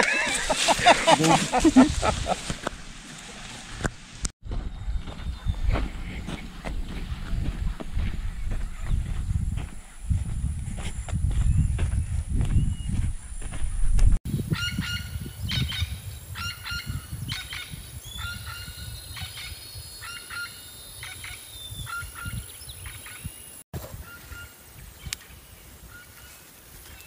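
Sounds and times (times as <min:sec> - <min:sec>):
walking and handling noise: 0:00.0 - 0:14.2.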